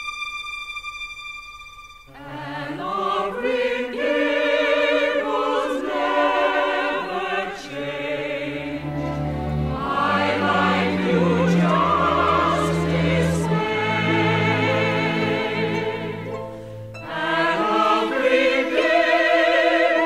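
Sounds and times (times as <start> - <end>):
choir singing in harmony: 2.1 - 20.0.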